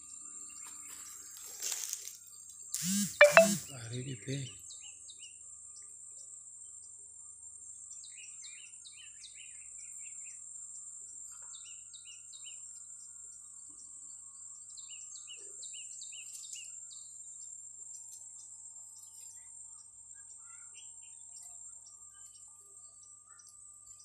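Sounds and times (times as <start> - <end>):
high-pitched insect buzz: 2.8 - 3.6
small birds chirping: 11.4 - 24.0.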